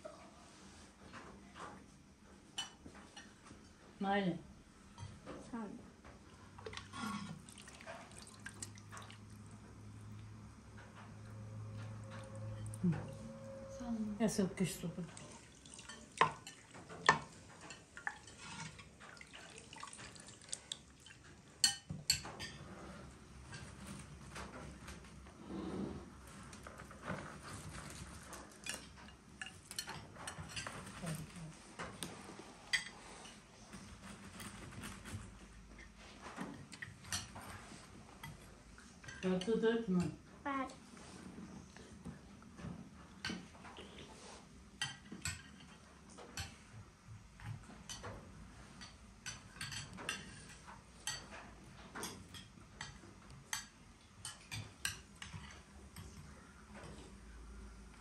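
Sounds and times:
cutlery and dishes clinking: 15.8 - 19.2, 21.2 - 22.8, 26.6 - 31.9, 44.8 - 46.7, 47.4 - 56.2.

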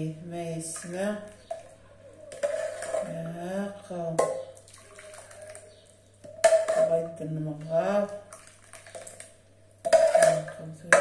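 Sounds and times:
thick soup poured into bowl: 4.6 - 5.7.

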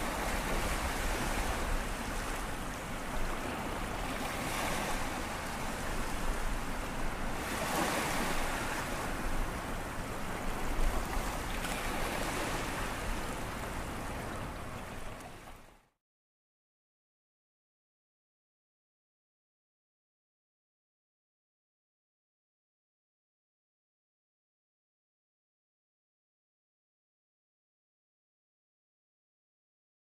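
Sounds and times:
surf washing over sandy beach: 0.0 - 15.0.

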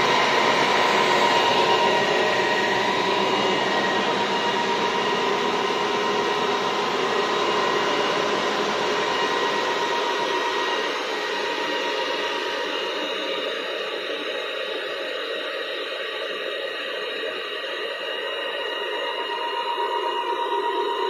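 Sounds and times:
server cooling fans whining: 0.0 - 14.3.

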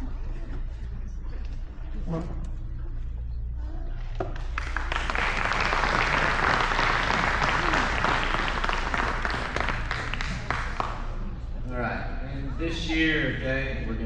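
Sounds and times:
audience applauding: 4.4 - 11.4.

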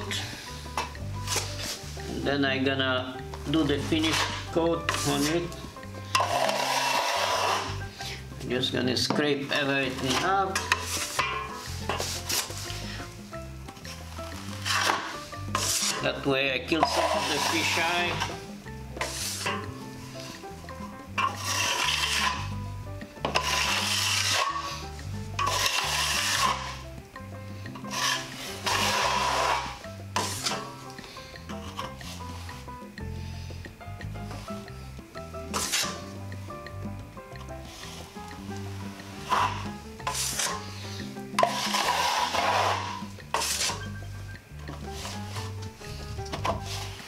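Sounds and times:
trowel scraping plaster wall: 0.0 - 2.1, 3.5 - 8.2, 9.5 - 13.1, 13.8 - 18.4, 19.0 - 20.5, 21.2 - 26.8, 27.8 - 30.8, 35.5 - 36.1, 37.6 - 43.9
background music with bass line: 0.0 - 47.0.

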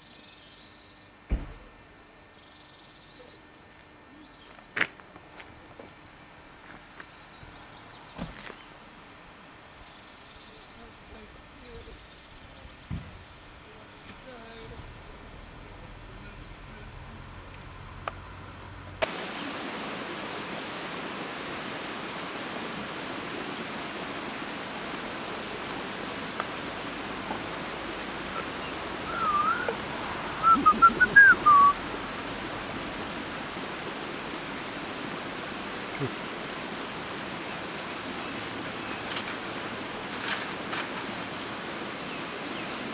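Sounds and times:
stream rushing: 19.0 - 42.9
bird chirps warbling: 28.3 - 31.8.

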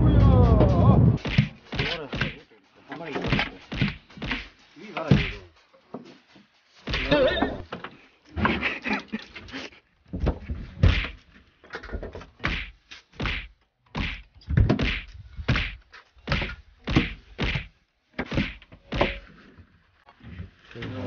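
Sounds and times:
knife whacking squid: 1.2 - 2.4, 3.2 - 4.5, 10.8 - 11.2, 12.4 - 19.2.

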